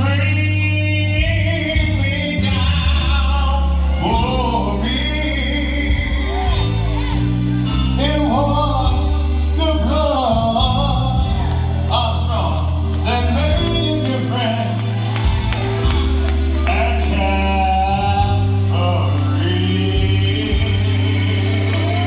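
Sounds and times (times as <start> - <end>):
choir singing gospel music: 0.0 - 22.0
deep sustained bass: 0.0 - 22.0.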